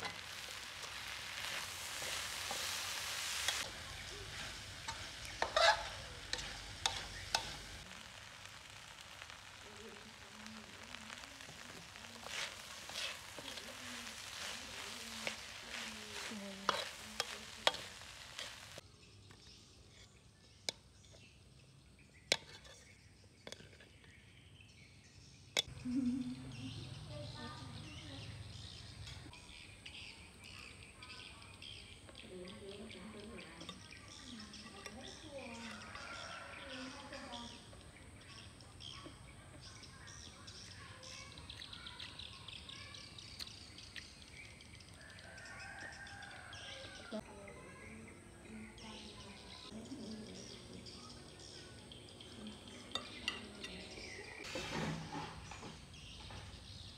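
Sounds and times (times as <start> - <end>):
spatula scraping a wok: 0.0 - 18.8, 22.3 - 24.0, 54.4 - 56.8
corn sizzling in a wok: 0.0 - 24.2, 25.6 - 47.2, 48.8 - 56.9
faint outdoor background noise: 0.0 - 56.9
small birds chirping: 0.0 - 56.9.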